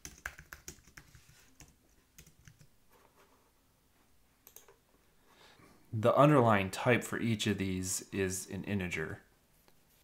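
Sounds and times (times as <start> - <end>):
faint keyboard typing: 0.0 - 3.2, 4.4 - 4.8.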